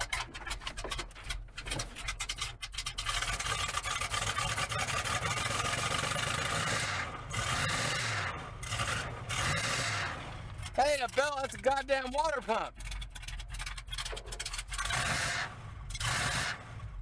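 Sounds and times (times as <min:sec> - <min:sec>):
gritty rasping grind: 0:00.0 - 0:16.6
engine idling: 0:00.0 - 0:17.0.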